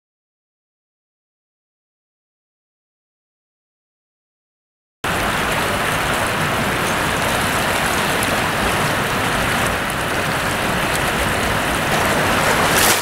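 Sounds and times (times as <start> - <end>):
shallow river rushing: 5.0 - 13.0.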